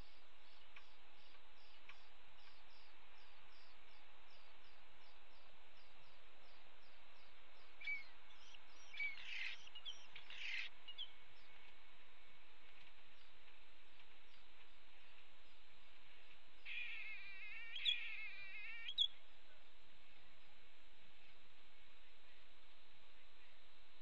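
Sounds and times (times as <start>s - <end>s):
starlings whistling and chattering: 0.0s - 11.7s, 16.6s - 19.2s
steady outdoor hiss: 0.0s - 24.0s.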